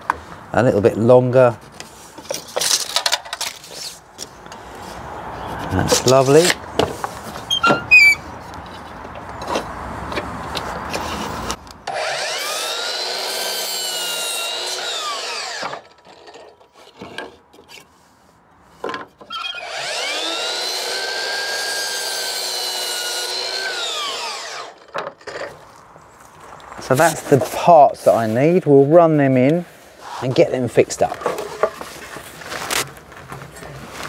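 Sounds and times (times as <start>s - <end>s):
mitre saw cutting wood: 11.9s - 16.5s, 19.3s - 25.0s.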